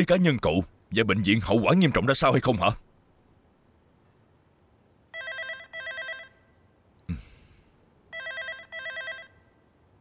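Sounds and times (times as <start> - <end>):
electronic telephone ringing: 5.1 - 6.6, 8.1 - 9.6.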